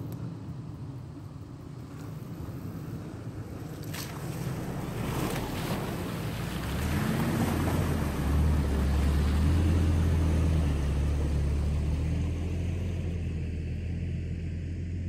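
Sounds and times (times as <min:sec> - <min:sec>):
water splashing from tyres: 0:01.8 - 0:13.0.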